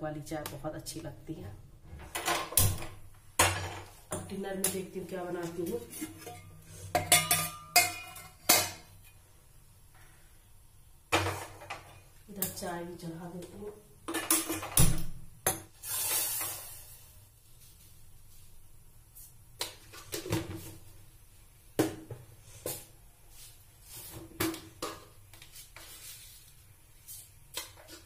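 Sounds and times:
utensils knocking and clinking: 0:07.0 - 0:08.9.

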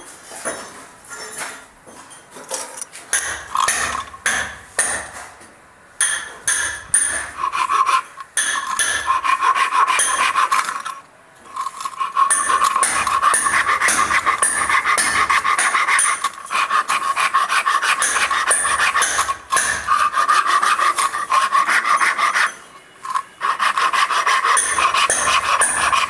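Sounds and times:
hacksaw sawing wood: 0:03.2 - 0:05.0, 0:06.6 - 0:11.0, 0:11.6 - 0:26.0.

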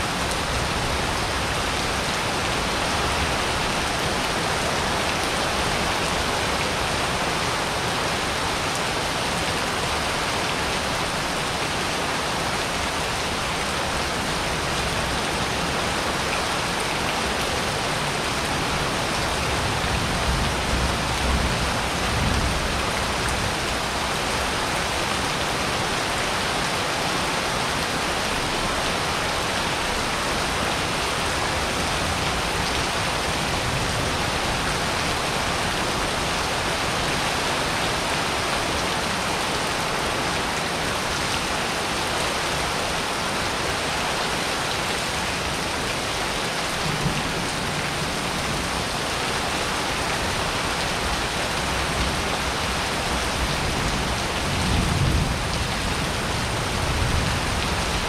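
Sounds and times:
rain pouring on pavement: 0:00.0 - 0:58.0.

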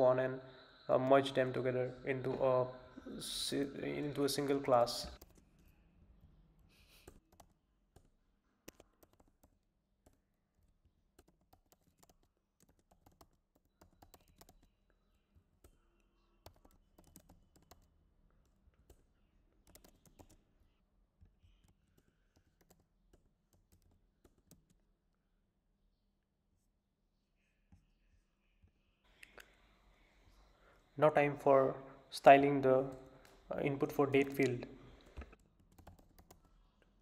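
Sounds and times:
keyboard typing: 0:08.7 - 0:10.2, 0:11.2 - 0:14.7, 0:16.4 - 0:17.9, 0:19.6 - 0:20.4, 0:21.5 - 0:24.8, 0:34.0 - 0:36.6.

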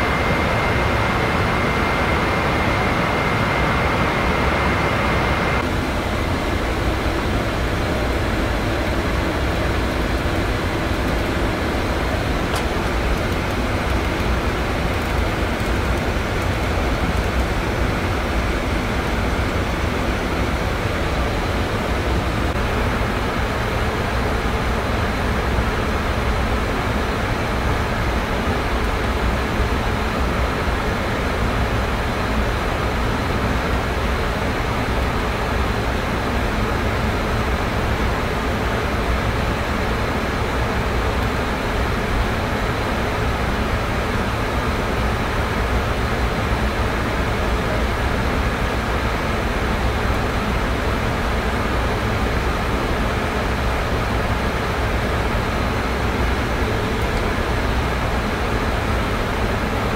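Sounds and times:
faint high whine: 0:00.0 - 0:24.5
air conditioning roar: 0:00.0 - 0:59.9.

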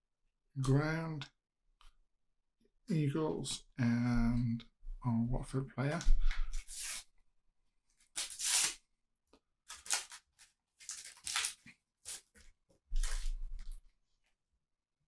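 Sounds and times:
sticker packets tearing and rustling: 0:08.0 - 0:08.8, 0:09.7 - 0:13.7.

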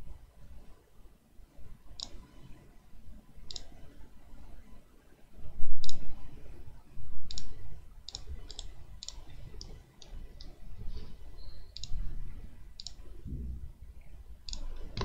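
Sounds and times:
computer mouse button clicking: 0:07.3 - 0:07.5, 0:11.8 - 0:12.0, 0:12.8 - 0:13.0.

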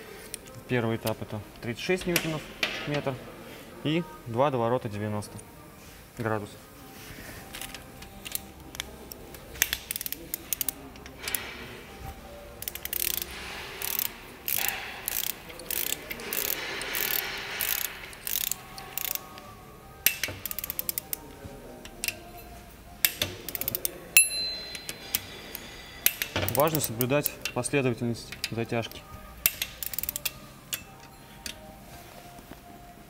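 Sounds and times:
ratchet wrench clicking: 0:07.6 - 0:11.4, 0:12.6 - 0:19.4, 0:20.0 - 0:21.2, 0:21.8 - 0:22.3, 0:23.0 - 0:27.6, 0:28.3 - 0:31.6.

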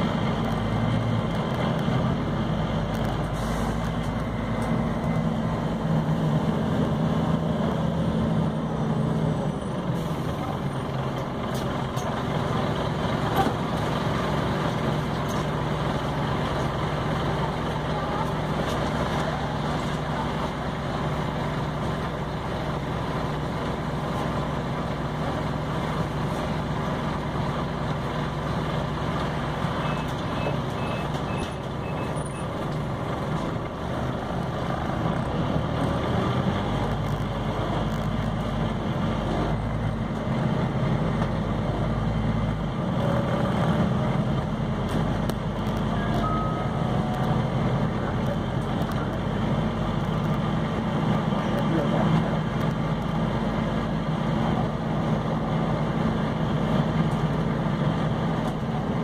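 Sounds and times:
bus engine and road noise: 0:00.0 - 0:59.0
high beeps: 0:46.0 - 0:47.4.

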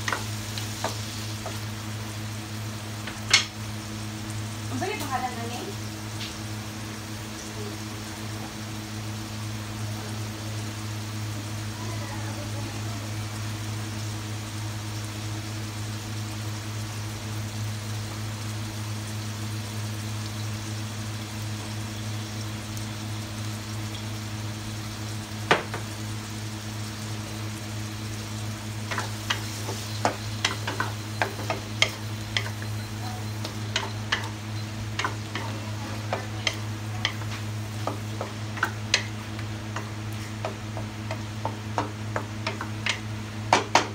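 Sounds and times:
food sizzling in a wok: 0:00.0 - 0:43.9
wooden spatula scraping a wok: 0:28.9 - 0:43.0.

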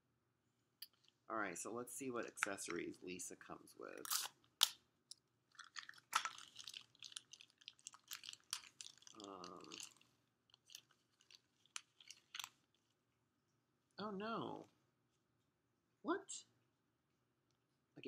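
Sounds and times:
plastic packaging crinkling: 0:05.5 - 0:12.9.

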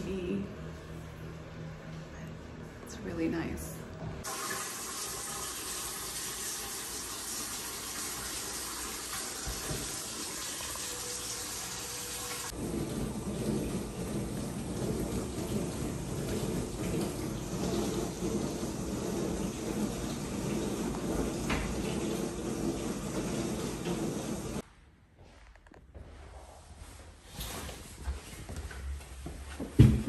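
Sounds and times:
faucet running water: 0:04.2 - 0:24.6.

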